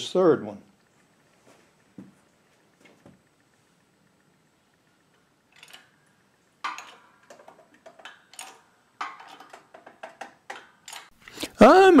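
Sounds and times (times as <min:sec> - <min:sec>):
metal clinks and scrapes: 0:05.5 - 0:06.0, 0:06.6 - 0:11.2.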